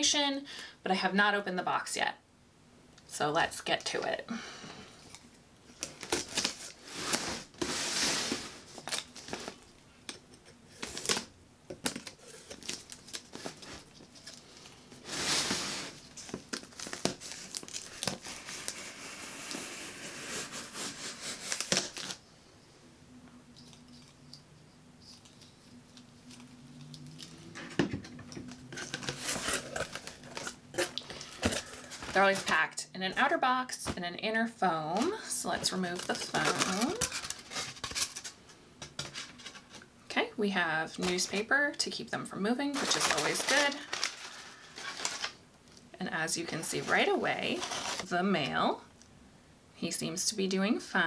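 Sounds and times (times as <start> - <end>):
packing tape scraping and ripping: 5.8 - 9.6, 10.7 - 22.2, 28.4 - 32.6, 35.0 - 39.8, 42.7 - 45.4, 46.6 - 48.1
rustling against styrofoam: 5.9 - 9.7, 12.1 - 22.2, 28.6 - 32.7, 35.0 - 38.4, 42.7 - 45.4, 46.5 - 48.1
cardboard flaps folding: 42.8 - 45.4.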